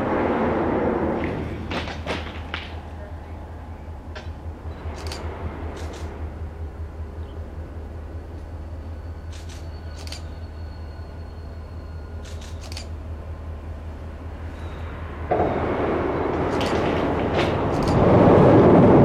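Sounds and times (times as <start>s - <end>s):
diesel locomotive engine throb: 0.0s - 19.0s
sharp clicks: 4.2s - 6.2s, 9.3s - 10.3s, 12.2s - 13.0s, 17.7s - 18.1s.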